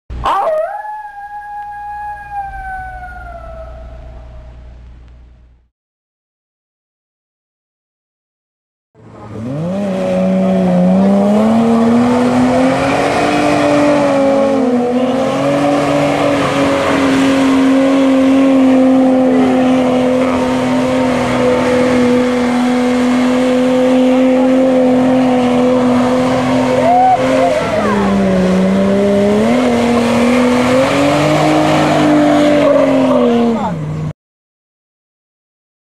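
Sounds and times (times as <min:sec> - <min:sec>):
car engine revving hard: 0:09.0 - 0:34.1.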